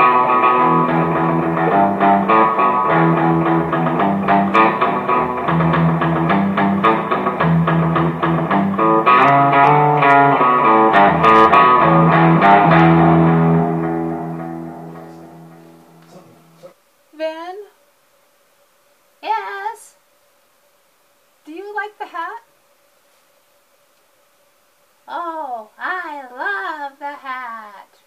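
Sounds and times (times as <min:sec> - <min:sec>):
plucked guitar music: 0:00.0 - 0:16.6.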